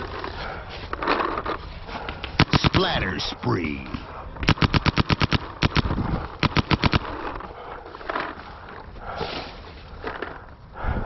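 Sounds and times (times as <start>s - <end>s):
paintball marker firing: 2.4s - 3.1s, 4.4s - 7.2s.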